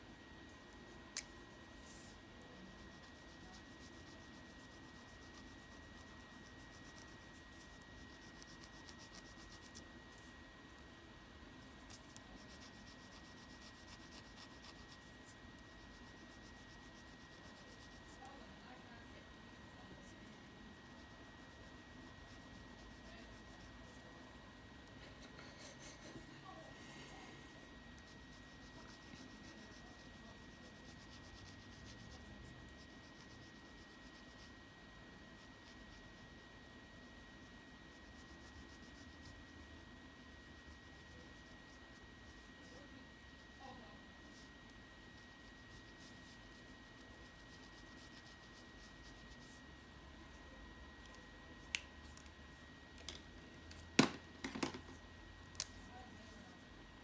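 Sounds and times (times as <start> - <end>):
pencil scratching on paper: 0.5 - 10.3, 11.6 - 18.6, 19.9 - 24.0, 27.6 - 34.6, 35.3 - 49.8.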